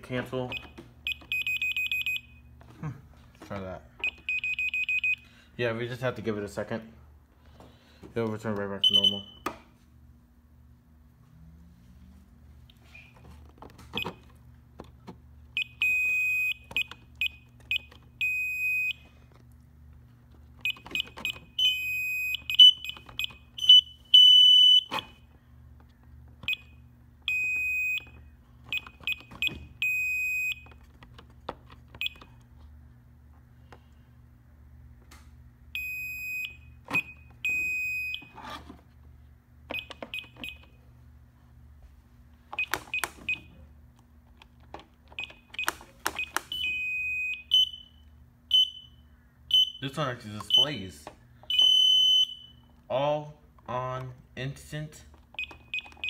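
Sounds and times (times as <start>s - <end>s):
steady low hum: 0.0s - 55.8s
keypad beeping: 0.5s - 2.4s, 4.0s - 5.2s, 13.9s - 14.3s, 31.9s - 32.4s, 39.7s - 40.8s, 42.6s - 43.6s, 45.1s - 47.8s, 55.3s - 56.0s.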